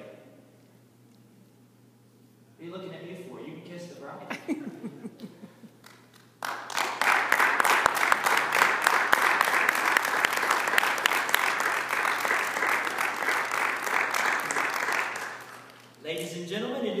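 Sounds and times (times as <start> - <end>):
guests clapping: 5.2 - 16.0.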